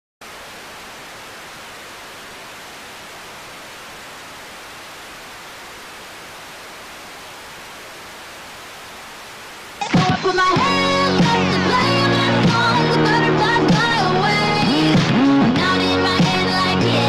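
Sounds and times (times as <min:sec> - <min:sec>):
static hiss: 0:00.2 - 0:17.0.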